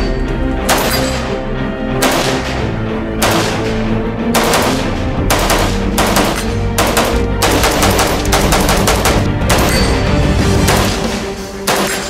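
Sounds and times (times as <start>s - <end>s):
background music: 0.0s - 12.0s
rapid rifle fire: 2.0s - 2.6s, 3.2s - 9.8s, 11.7s - 12.0s.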